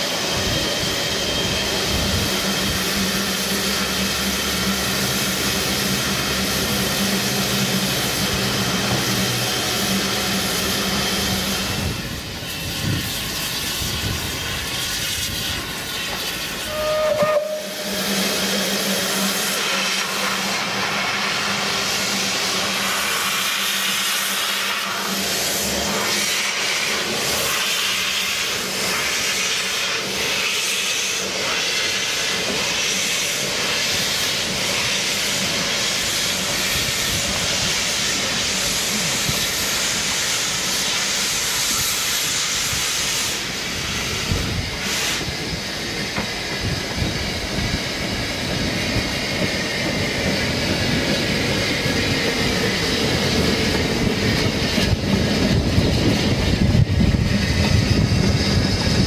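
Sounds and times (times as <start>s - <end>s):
steam hissing: 0.0s - 59.0s
steam whistle toot: 16.6s - 20.2s.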